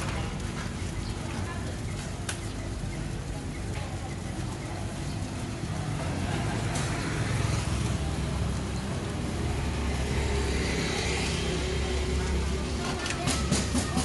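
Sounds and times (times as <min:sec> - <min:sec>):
road traffic passing: 0:00.0 - 0:14.0
vehicle passing: 0:05.2 - 0:14.0.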